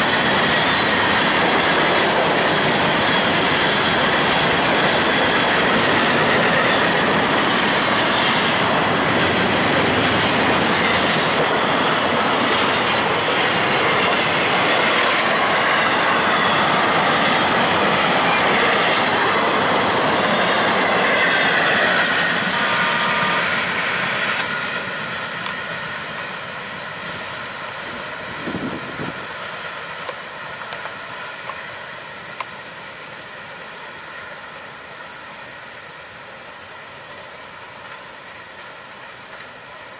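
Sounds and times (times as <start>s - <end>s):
high-pitched hiss: 0.0s - 39.9s
train wheels clattering on rails: 0.0s - 39.9s.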